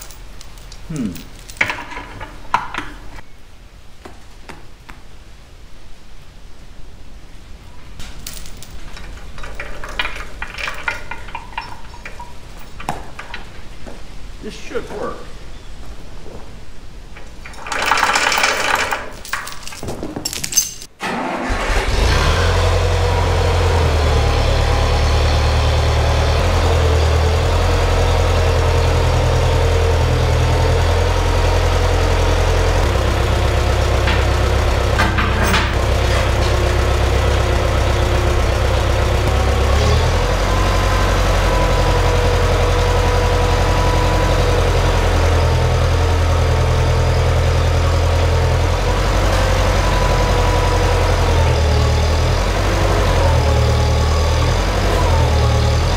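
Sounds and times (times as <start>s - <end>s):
tractor engine idling: 8.7s - 15.5s, 21.0s - 55.9s.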